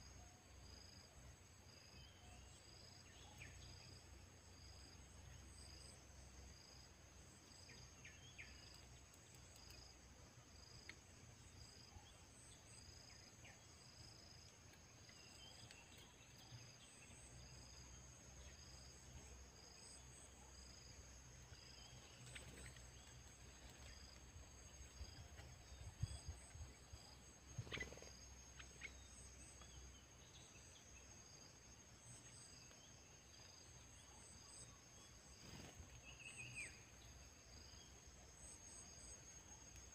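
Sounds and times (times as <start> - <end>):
high insect hum: 0.0 - 39.9
insects chirping: 0.0 - 39.9.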